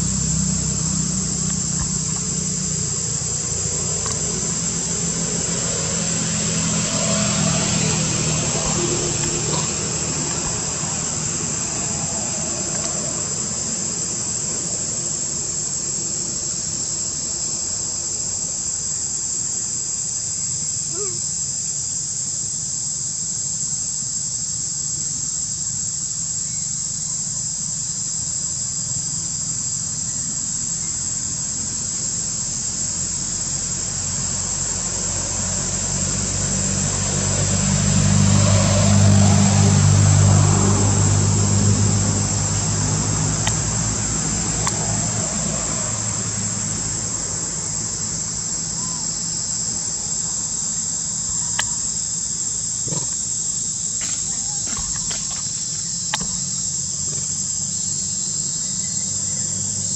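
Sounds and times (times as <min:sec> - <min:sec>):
high-pitched insect drone: 0:00.0 - 0:59.9
vehicle engine hum: 0:00.0 - 0:59.9.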